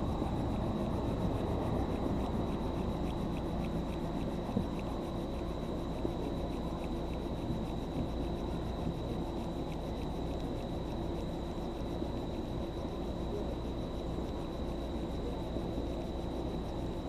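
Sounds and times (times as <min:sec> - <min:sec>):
crickets trilling: 0:00.0 - 0:17.0
low background rumble: 0:00.0 - 0:17.0.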